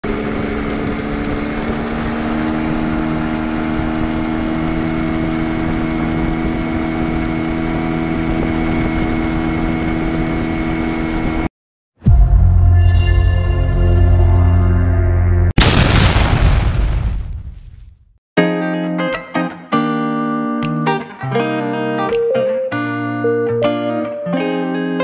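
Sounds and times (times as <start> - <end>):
boat engine running: 0.0 - 11.5
music with deep boom: 12.0 - 15.8.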